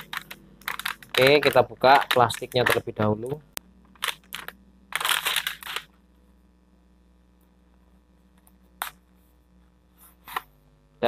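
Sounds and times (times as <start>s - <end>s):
plastic wrapping crinkling: 0.0s - 2.9s, 3.9s - 5.9s.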